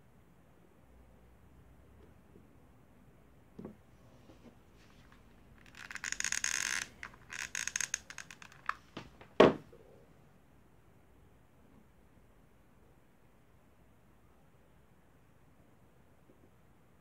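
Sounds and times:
hot glue crackling and scraping: 4.8 - 8.9.

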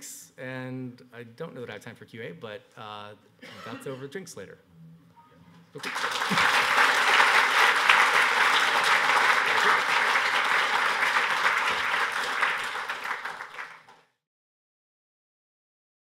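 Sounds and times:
audience applauding: 5.8 - 14.0.

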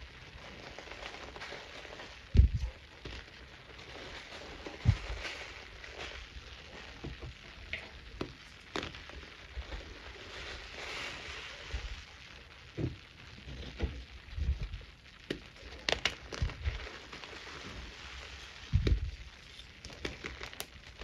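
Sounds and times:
soft crunches of clumps: 0.0 - 21.0
wet powder fizzing and crackling: 0.0 - 21.0
muffled thumps: 2.4 - 2.6, 18.7 - 19.1.

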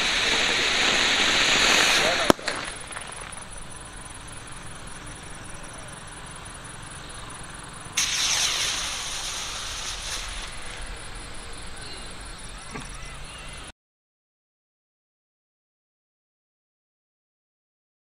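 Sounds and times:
firework hissing whoosh: 0.0 - 13.7.

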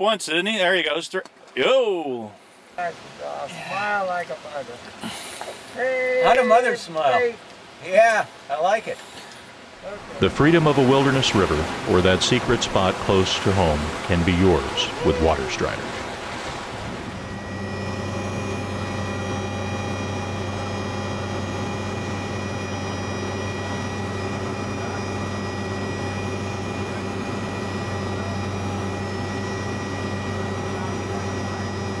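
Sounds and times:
helicopter engine and rotor drone: 16.8 - 32.0.

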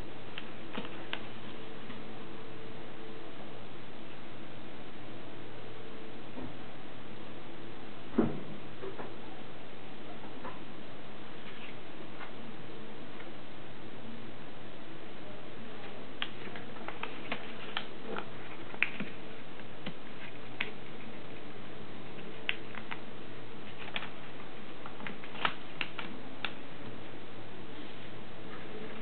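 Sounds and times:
steady hum and hiss: 0.0 - 29.0
paper folding clicks and taps: 16.2 - 21.0, 22.2 - 23.0, 23.7 - 26.6.

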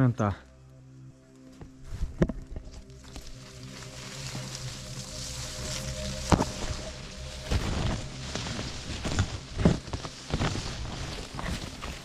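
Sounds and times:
leaves and stems rustling: 1.7 - 12.0
footfalls: 5.7 - 12.0.

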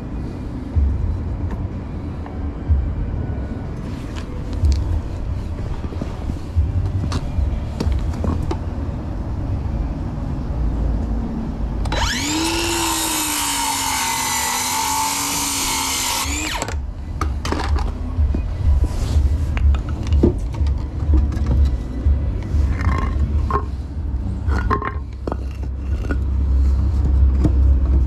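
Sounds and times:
footsteps on asphalt: 3.9 - 8.6
cordless power tool whirring: 11.9 - 16.8.

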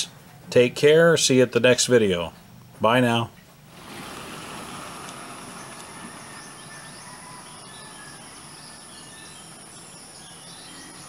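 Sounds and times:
insects droning: 3.6 - 11.0
bird chirps: 3.8 - 11.0.

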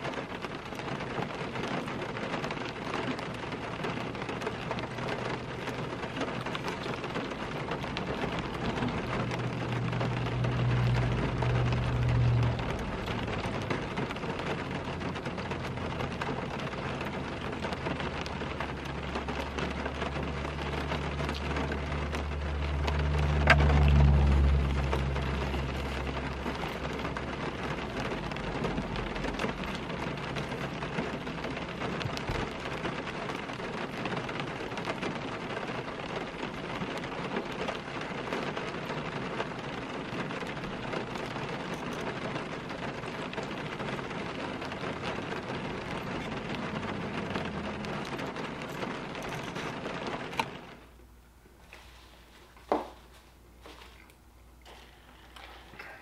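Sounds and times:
rain on car roof: 0.0 - 56.0
low rumble: 7.3 - 32.2.

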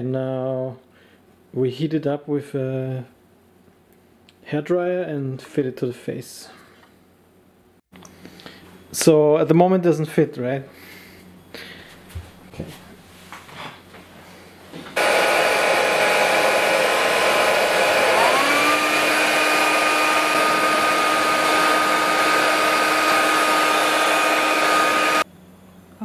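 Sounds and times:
hair dryer blowing: 15.0 - 25.3.

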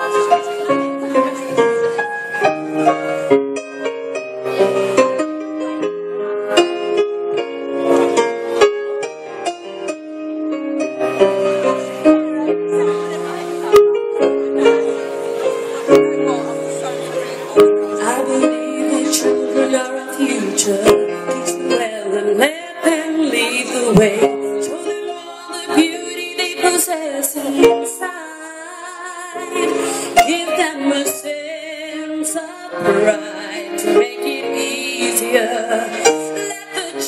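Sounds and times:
woman singing into a microphone: 17.8 - 37.0.

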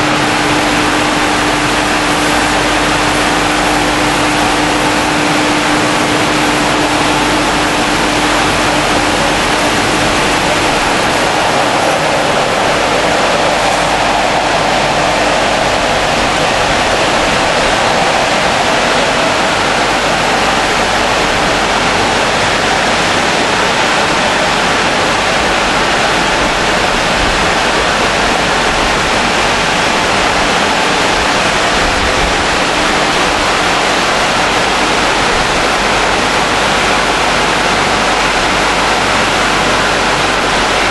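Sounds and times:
low motor hum: 0.0 - 40.9
water spray and rotating brushes: 0.0 - 40.9.

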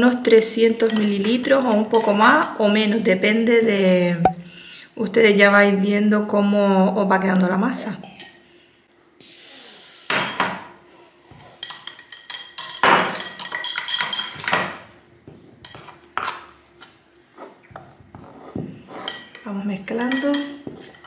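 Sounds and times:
spoon scraping and clinking bowl: 18.9 - 21.0.

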